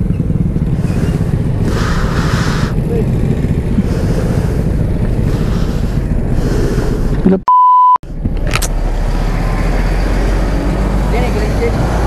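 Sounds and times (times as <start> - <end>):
wind buffeting microphone: 0.0 - 7.3
low rumble: 0.0 - 7.4
censor bleep: 7.5 - 8.0.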